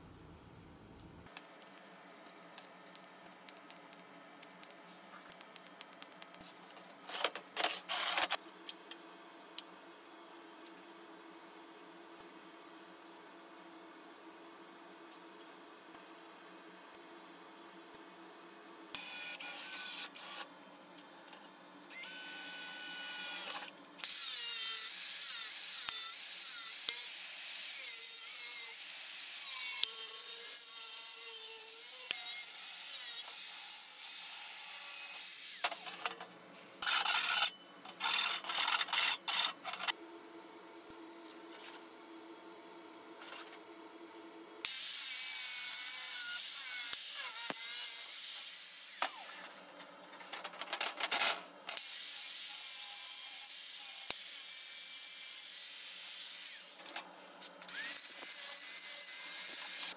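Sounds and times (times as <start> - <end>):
angle grinder cutting steel: 21.9 - 36.0, 44.7 - 49.4, 51.8 - 57.0, 57.6 - 59.9.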